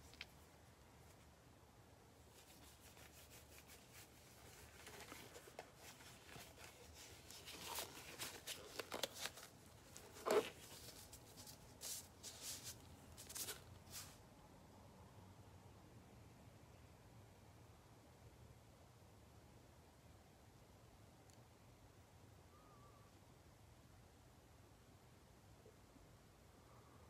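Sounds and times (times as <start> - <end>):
objects rustling and tapping: 4.5 - 14.1.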